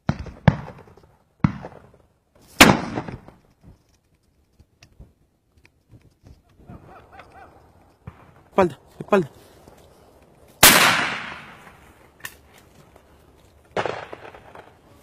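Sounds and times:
shotgun shots: 2.6 - 3.3, 10.6 - 11.8, 13.8 - 14.7.

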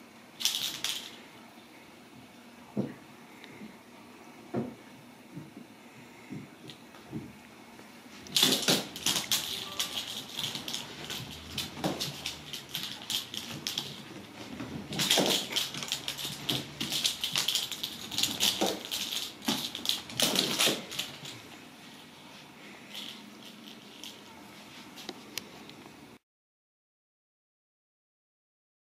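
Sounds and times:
kittens clattering on floor: 8.3 - 21.4.

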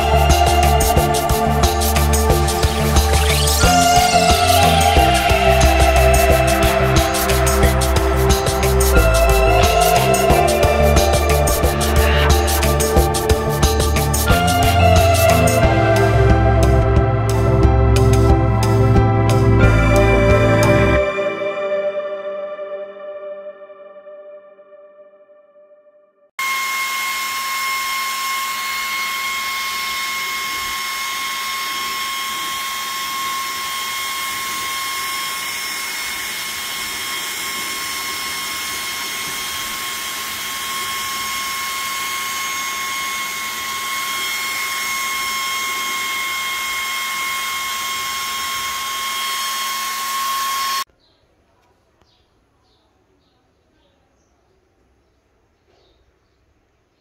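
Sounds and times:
fan whining with rushing air: 0.0 - 20.1, 26.4 - 50.9.

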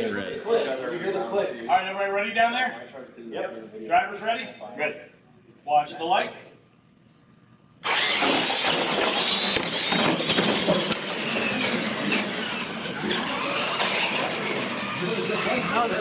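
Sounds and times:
electric motors whining: 7.8 - 16.0.

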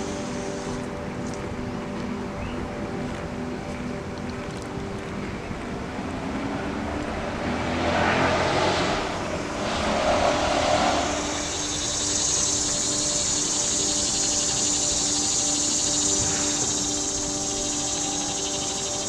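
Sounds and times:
insects trilling: 0.0 - 0.9, 7.4 - 19.0
rushing sound: 5.8 - 19.0.

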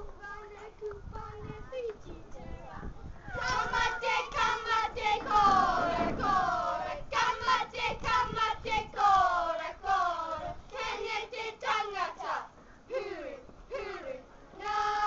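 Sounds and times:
children chanting in unison: 14.6 - 15.0.

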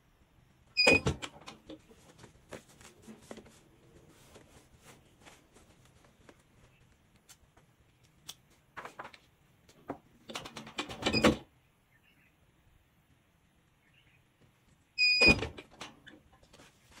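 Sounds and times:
rustling of shirt fabric: 1.7 - 9.4, 16.4 - 17.0.

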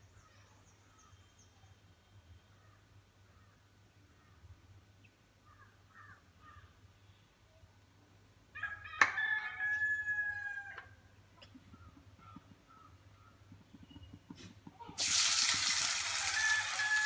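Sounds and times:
rooster crowing: 8.6 - 11.0, 16.0 - 17.0
faint bird chirps: 11.4 - 14.4.

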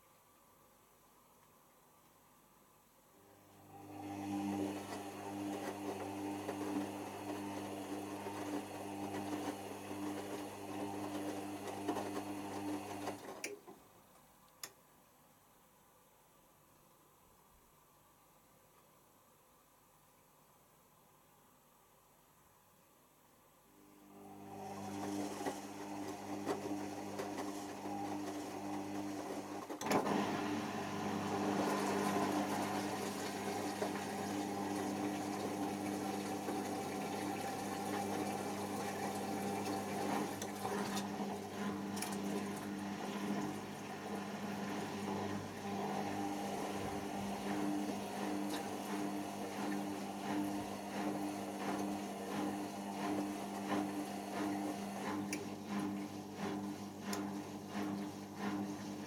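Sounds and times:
water sloshing in washing machine: 3.7 - 13.4, 24.2 - 59.0
drain pump humming: 24.0 - 59.0.

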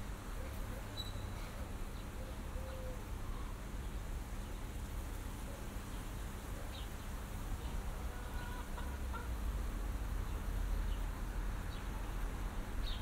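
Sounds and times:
faint bird chirps: 0.4 - 3.5
distant hen clucking: 8.0 - 9.4.

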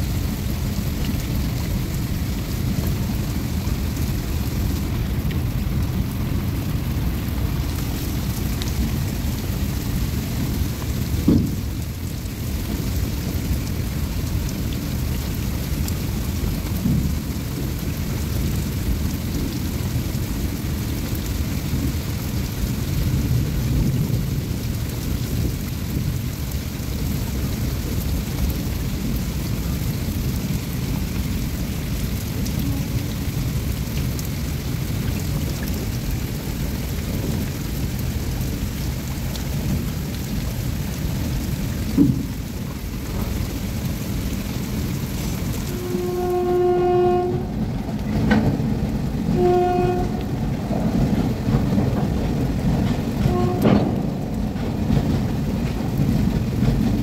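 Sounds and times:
heavy rain hissing: 0.0 - 57.0
freight train rolling past: 40.6 - 57.0.

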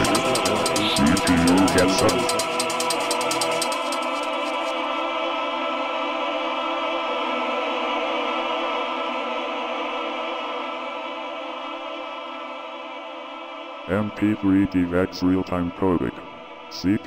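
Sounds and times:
fast hi-hat pattern: 0.0 - 4.8
sustained synthesizer chord: 0.0 - 4.8.

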